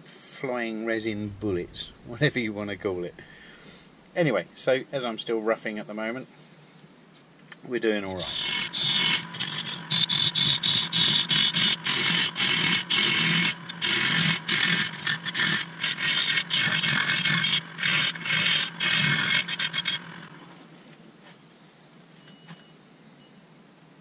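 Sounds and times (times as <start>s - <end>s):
lathe tool scraping wood: 1.1s - 3.8s, 8.0s - 20.4s.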